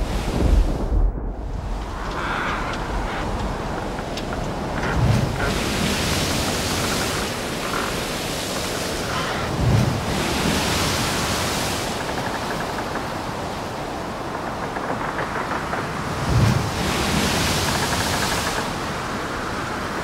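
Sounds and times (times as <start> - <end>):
heavy surf: 0.0 - 20.0
wind: 0.0 - 20.0
low boom: 0.4 - 3.1.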